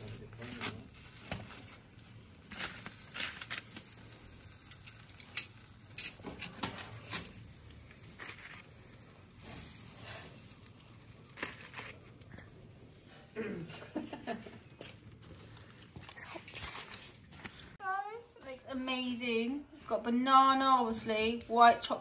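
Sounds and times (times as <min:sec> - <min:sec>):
aluminium foil crinkling: 0:00.0 - 0:13.2, 0:13.8 - 0:17.8.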